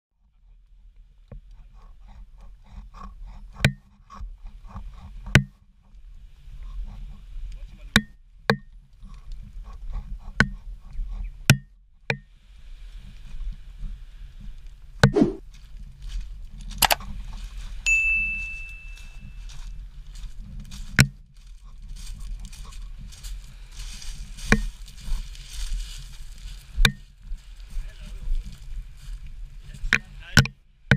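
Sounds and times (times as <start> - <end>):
high steady beep: 17.9 - 19.4.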